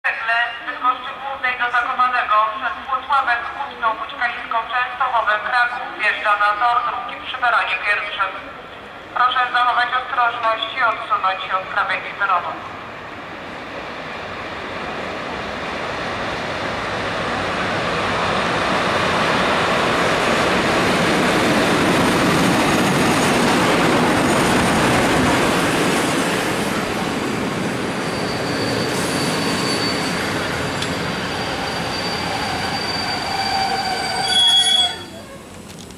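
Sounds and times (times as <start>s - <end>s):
train rolling past: 12.4s - 35.9s
high squeal of wheels and brakes: 27.9s - 35.6s.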